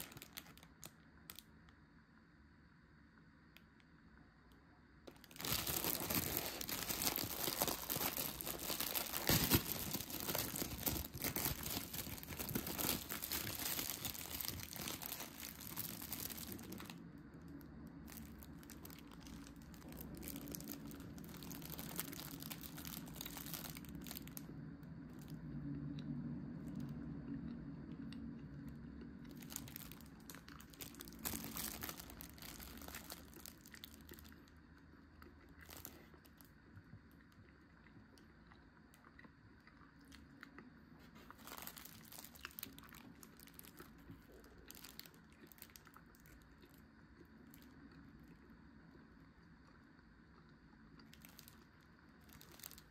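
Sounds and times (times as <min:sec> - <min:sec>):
wrapper tearing and crinkling: 0:00.0 - 0:01.4, 0:05.1 - 0:17.0, 0:18.1 - 0:24.4, 0:29.3 - 0:34.3, 0:41.2 - 0:46.2, 0:51.1 - 0:51.6, 0:52.2 - 0:52.9.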